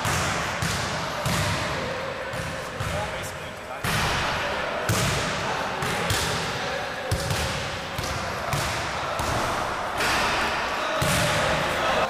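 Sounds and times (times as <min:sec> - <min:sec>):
basketballs bouncing on hardwood floor: 0:07.1 - 0:09.4.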